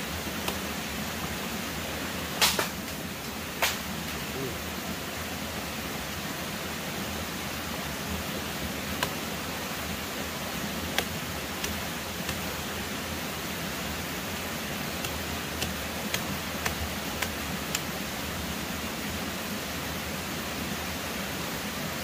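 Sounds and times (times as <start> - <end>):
steady rushing hiss: 0.0 - 22.0
knife cutting bamboo shoot clicks: 0.4 - 1.4, 2.4 - 3.0, 3.6 - 3.9, 8.9 - 9.3, 10.8 - 12.5, 15.0 - 18.0.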